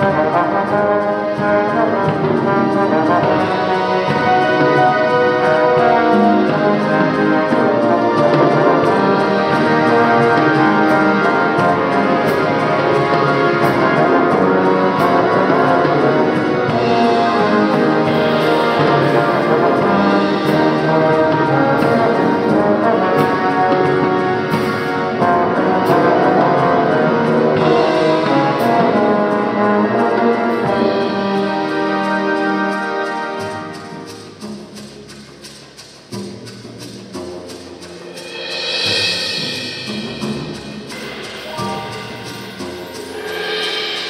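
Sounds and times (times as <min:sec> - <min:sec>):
drum kit: 0:00.0 - 0:32.1, 0:33.3 - 0:44.0
trombone and tuba playing: 0:00.0 - 0:34.8, 0:37.1 - 0:44.0
sharp cymbal hits: 0:38.1 - 0:44.0.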